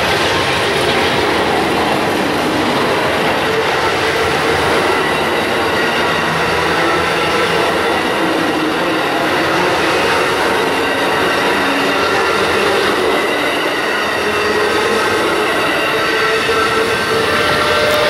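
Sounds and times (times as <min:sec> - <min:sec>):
steel train wheels on rails: 0:00.0 - 0:18.0.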